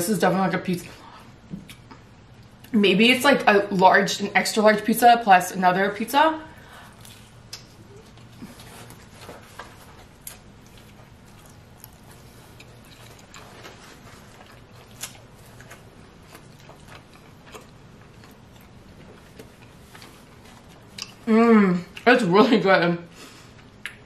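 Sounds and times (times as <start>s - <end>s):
faint low hum: 0.0s - 24.0s
person chewing food: 6.8s - 22.0s.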